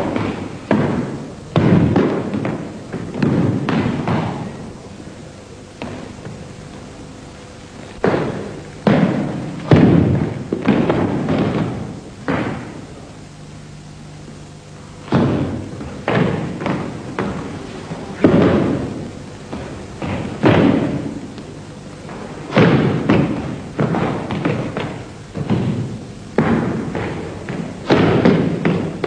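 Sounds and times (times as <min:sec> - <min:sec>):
heavy stamps on wooden floor: 0:07.9 - 0:12.7.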